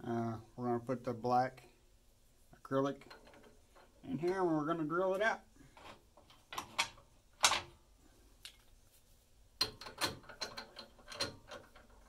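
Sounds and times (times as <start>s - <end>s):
lathe chuck metal clicks and knocks: 3.0s - 4.4s, 9.6s - 12.0s.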